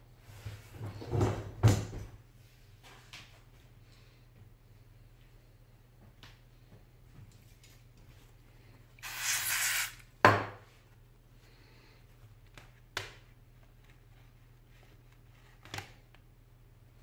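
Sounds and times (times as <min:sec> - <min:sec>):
hiss: 0:09.0 - 0:10.0.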